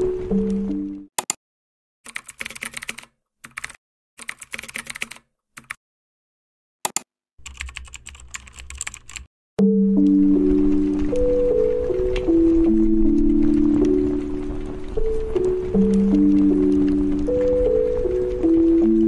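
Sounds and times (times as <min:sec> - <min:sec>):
music with sustained notes: 0:00.0 - 0:01.1, 0:09.6 - 0:19.0
keyboard typing: 0:02.1 - 0:05.8, 0:06.9 - 0:09.3.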